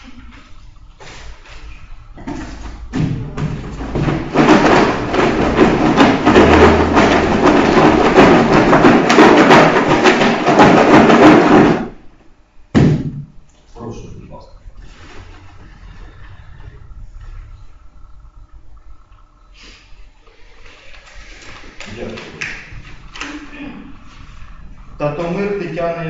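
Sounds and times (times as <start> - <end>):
paper rattling in a box: 3.6 - 11.8.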